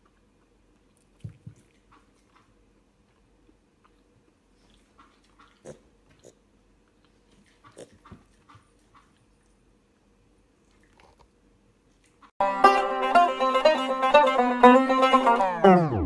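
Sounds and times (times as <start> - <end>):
piglet grunting and sniffing: 3.8 - 9.6.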